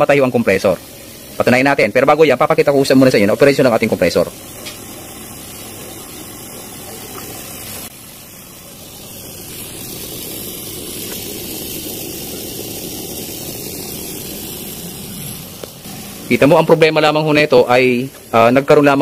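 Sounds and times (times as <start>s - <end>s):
refrigerator compressor humming: 0.0s - 19.0s.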